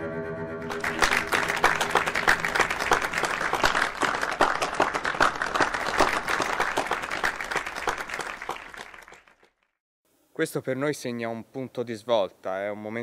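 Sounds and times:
crowd clapping: 0:00.7 - 0:09.8.

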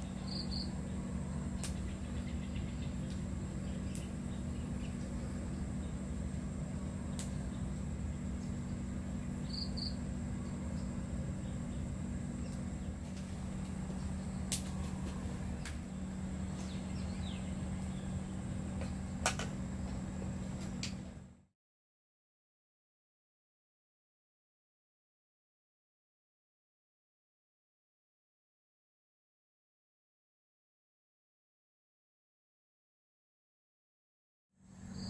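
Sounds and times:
low hum: 0:00.0 - 0:21.5
high-pitched insect drone: 0:09.4 - 0:10.1.

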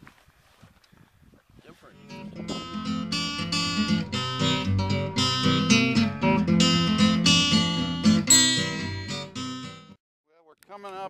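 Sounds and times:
acoustic guitar strumming chords: 0:02.0 - 0:10.0.

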